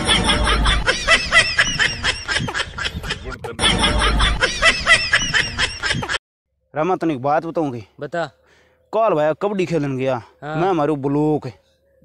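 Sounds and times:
high-pitched giggling: 0:00.0 - 0:06.2.

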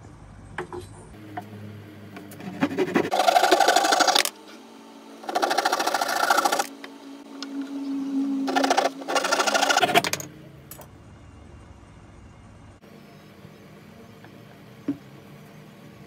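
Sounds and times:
hand saw cutting wood: 0:02.4 - 0:04.3, 0:05.2 - 0:06.7, 0:08.5 - 0:10.0.

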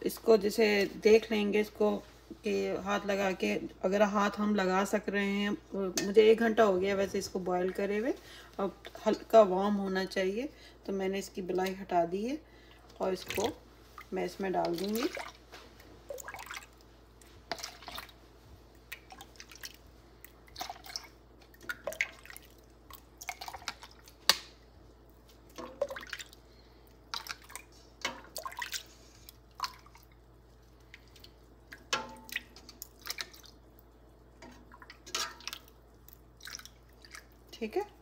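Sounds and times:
milk splashing and dripping: 0:14.7 - 0:37.6.

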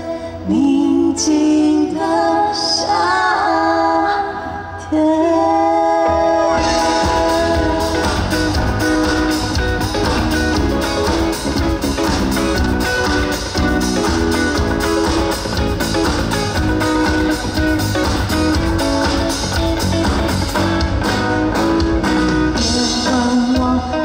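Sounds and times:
woman singing: 0:00.0 - 0:08.6, 0:22.6 - 0:24.0
live pop band: 0:00.0 - 0:24.0.

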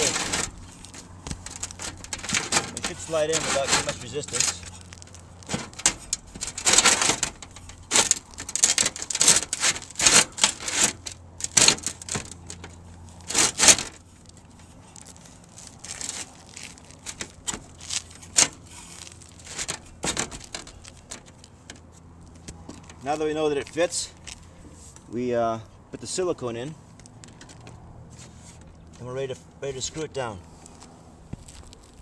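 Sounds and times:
sheet metal scraping under shingles: 0:00.0 - 0:23.2.

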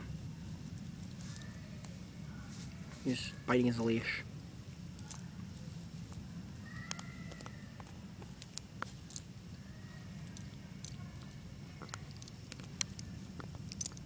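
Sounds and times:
steady low hum: 0:00.0 - 0:14.0
puppy chewing leash clinks: 0:10.3 - 0:14.0.

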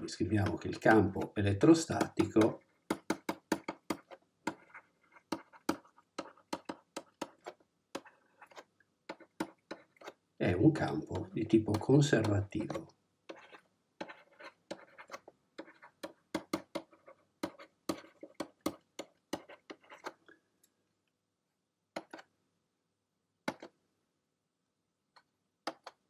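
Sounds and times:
pen scratching on paper: 0:00.0 - 0:20.2.

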